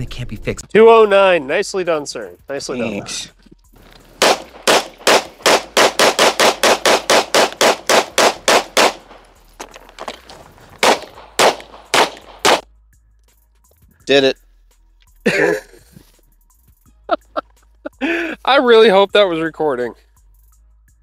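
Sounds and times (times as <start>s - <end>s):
pistol shots: 4.2s - 9.4s, 10.8s - 12.6s.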